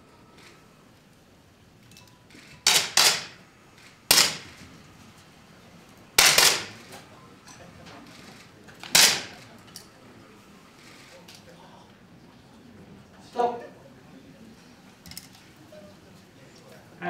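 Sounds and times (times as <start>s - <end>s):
air pistol cracks: 2.6s - 3.4s, 4.1s - 4.6s, 6.2s - 6.8s, 8.8s - 9.9s.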